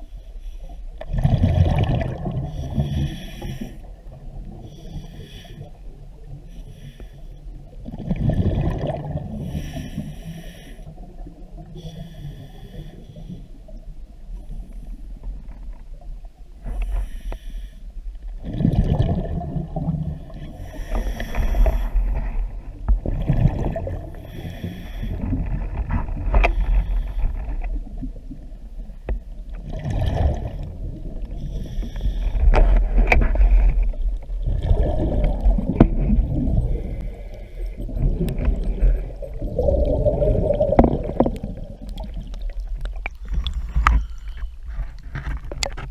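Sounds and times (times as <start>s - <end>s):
bubbling exhalations: 34.4s - 44.1s.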